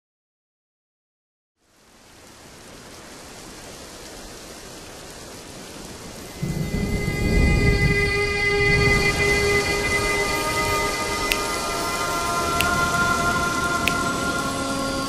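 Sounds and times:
rain hiss: 0:01.6 - 0:15.0
thunder rumble: 0:05.8 - 0:15.0.

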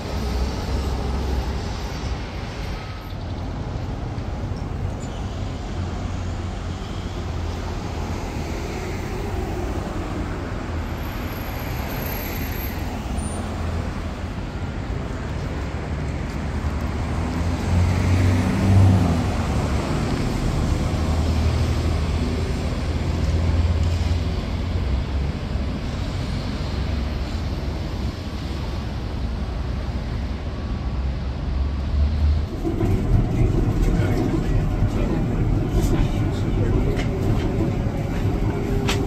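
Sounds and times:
traffic rumble: 0:00.0 - 0:39.0.

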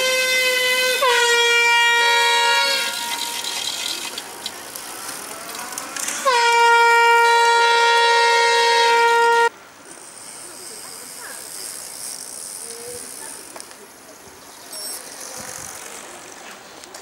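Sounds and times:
air horn blasts: 0:00.0 - 0:03.6, 0:06.2 - 0:09.5
handbikes rolling past: 0:00.0 - 0:17.0.

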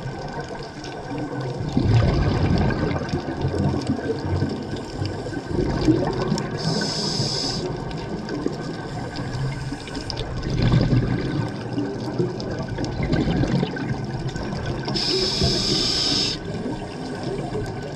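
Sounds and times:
underwater regulator bubbles: 0:00.0 - 0:17.9
high regulator hiss: 0:06.6 - 0:07.7, 0:15.0 - 0:17.0.

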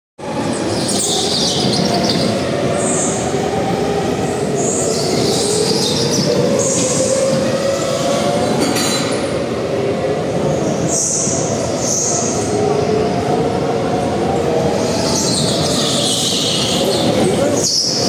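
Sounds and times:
high-pitched tyre squeals: 0:14.8 - 0:18.0.

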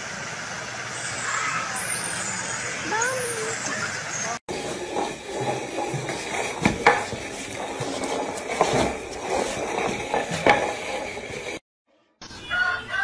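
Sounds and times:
pot knocking on tiles: 0:04.5 - 0:11.4
plant pot scraping on tiles: 0:04.5 - 0:11.6.

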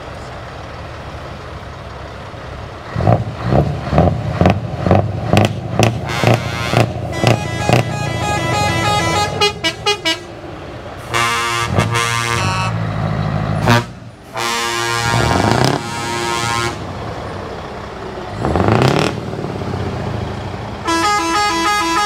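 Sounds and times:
diesel engines humming: 0:00.0 - 0:22.0
truck air horns: 0:05.8 - 0:10.4, 0:11.0 - 0:12.9, 0:13.6 - 0:16.9, 0:20.8 - 0:22.0.

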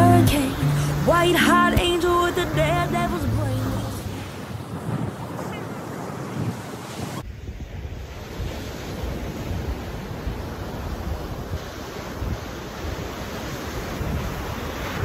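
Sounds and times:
ocean surf breaking: 0:00.0 - 0:15.0
wind buffeting microphone: 0:03.3 - 0:15.0.

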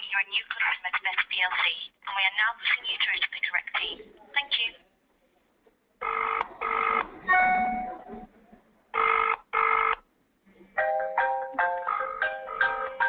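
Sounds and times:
telephone ringing tone: 0:06.0 - 0:07.1, 0:09.0 - 0:10.0
melodic ringtone: 0:10.8 - 0:13.0.

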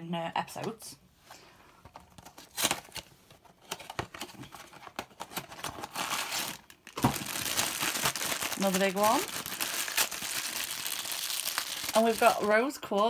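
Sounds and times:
foil bag crinkling: 0:05.4 - 0:12.6.

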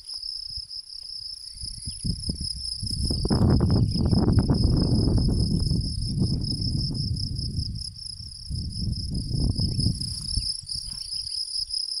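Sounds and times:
crickets trilling: 0:00.0 - 0:12.0
low rumble: 0:03.1 - 0:10.4.

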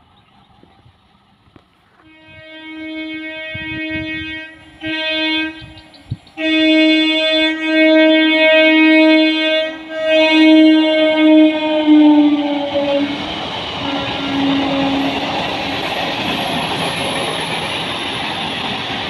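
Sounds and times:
train horn blasts: 0:01.9 - 0:13.2, 0:13.8 - 0:15.8.

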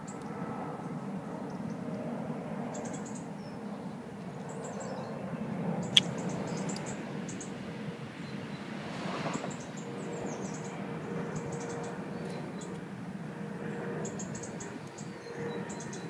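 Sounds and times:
small birds chirping: 0:05.8 - 0:07.5.

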